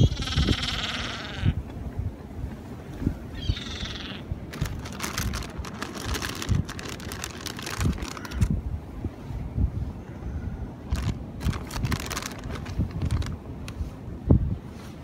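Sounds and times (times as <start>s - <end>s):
wind gusting on microphone: 0.0s - 15.0s
gull call: 3.4s - 4.2s.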